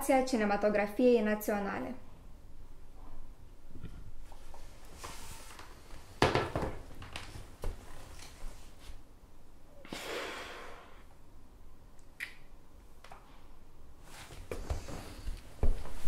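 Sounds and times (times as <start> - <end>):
clothing rustling: 4.1 - 6.2, 6.8 - 9.1, 14.0 - 16.0.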